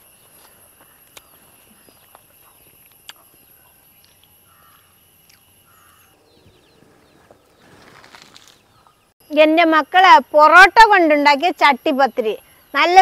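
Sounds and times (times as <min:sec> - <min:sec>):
high insect whine: 0:00.0 - 0:08.6, 0:09.2 - 0:13.0
bird chirps: 0:00.1 - 0:09.4.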